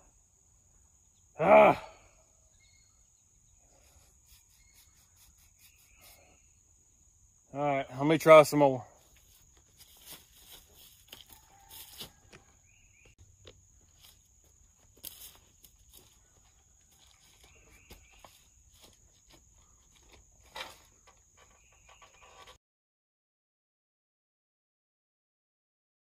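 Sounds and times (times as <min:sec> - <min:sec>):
faint footsteps: 0:09.0 - 0:20.8.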